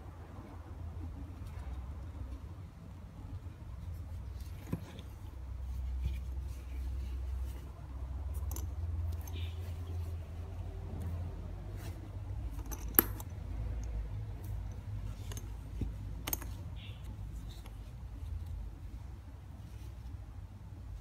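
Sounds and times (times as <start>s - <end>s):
low steady hum: 0.0s - 21.0s
bag hardware clinking: 8.3s - 10.0s, 11.8s - 17.8s.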